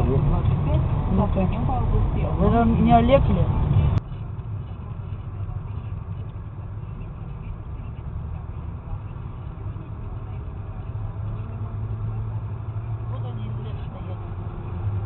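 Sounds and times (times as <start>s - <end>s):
car driving from inside cabin: 0.0s - 15.0s.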